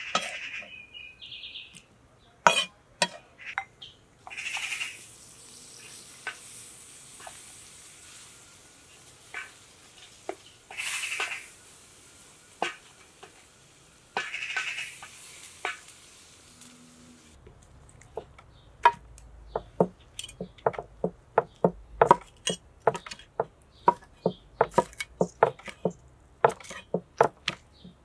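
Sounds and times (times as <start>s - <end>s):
short sizzle: 4.3s - 17.4s
cleaver chopping on wooden board: 19.6s - 28.0s
wooden spoon scraping pan: 19.6s - 28.0s.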